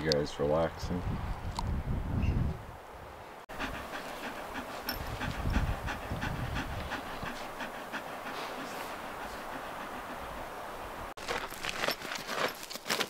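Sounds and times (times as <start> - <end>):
dog panting: 3.5 - 10.9.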